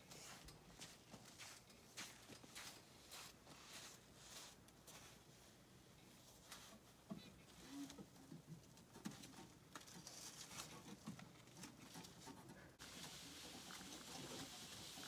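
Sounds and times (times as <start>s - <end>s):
steady hiss: 12.8s - 15.0s.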